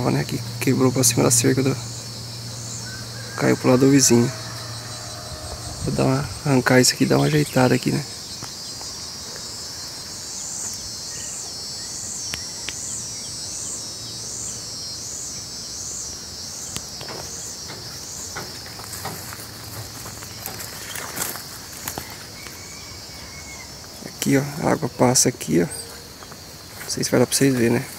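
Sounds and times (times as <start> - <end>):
high-pitched insect chorus: 0.0 - 27.9
light clicks and rustles: 17.0 - 22.2.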